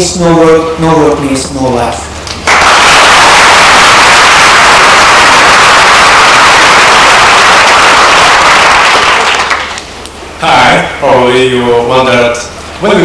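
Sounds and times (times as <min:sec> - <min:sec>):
audience applause: 0:02.4 - 0:09.9.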